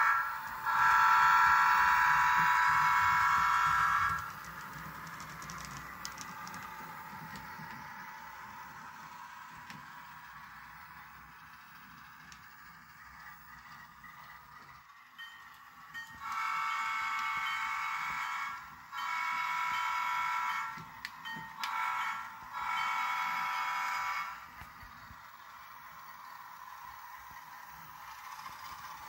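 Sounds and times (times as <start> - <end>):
model locomotive horn blasts: 0.0 - 4.4, 16.2 - 21.0, 21.6 - 24.5.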